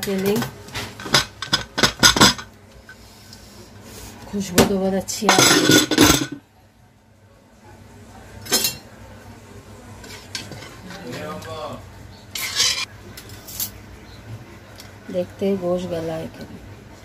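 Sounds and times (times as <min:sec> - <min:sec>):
metal ladle scraping pot: 0:12.3 - 0:12.9.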